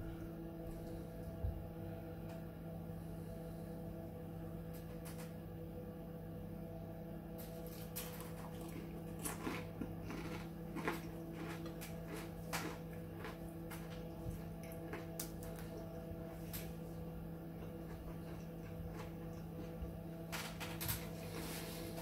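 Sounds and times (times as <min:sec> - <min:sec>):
steady low hum: 0:00.0 - 0:22.0
person chewing: 0:08.2 - 0:16.7, 0:17.6 - 0:19.8.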